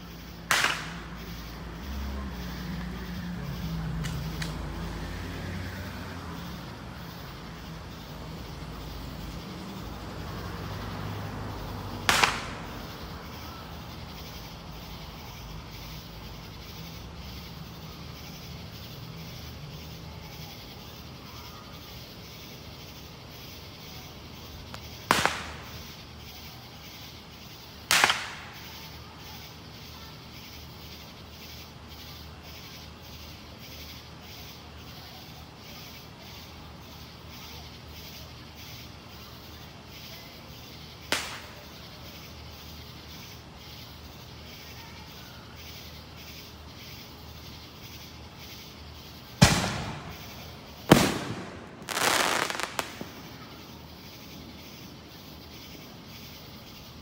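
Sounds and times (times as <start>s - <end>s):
firework bangs with echo: 0.5s - 1.5s, 12.0s - 13.0s, 24.8s - 25.9s, 27.9s - 28.8s, 41.1s - 41.7s, 49.4s - 53.4s.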